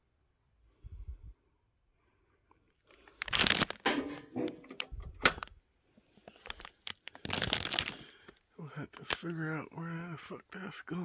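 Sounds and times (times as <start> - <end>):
gloved hand rustling and crinkling: 2.9 - 9.4.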